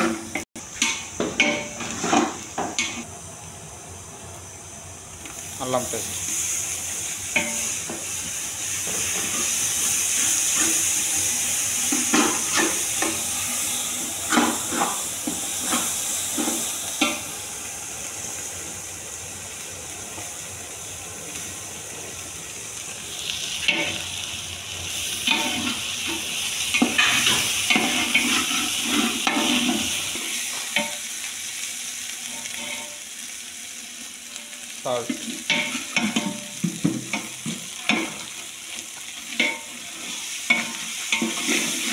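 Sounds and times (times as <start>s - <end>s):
onions sizzling in a pot: 0.0s - 41.9s
metal spatula scraping a pot: 26.8s - 30.1s, 32.3s - 33.0s.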